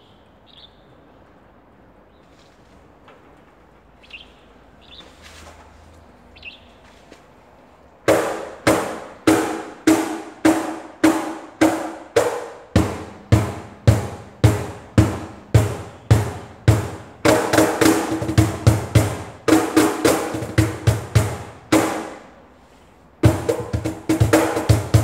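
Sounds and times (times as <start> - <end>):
cajon played by hand: 8.1 - 22.3, 23.2 - 25.0.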